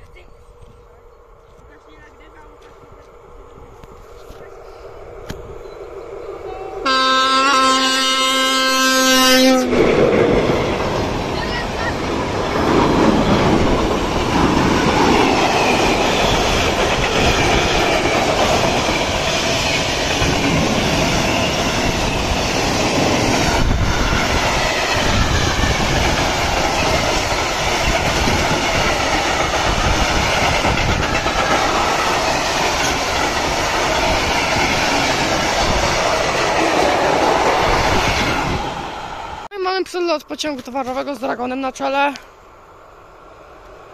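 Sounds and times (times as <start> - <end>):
freight train wheels clattering on track: 8.2 - 39.0.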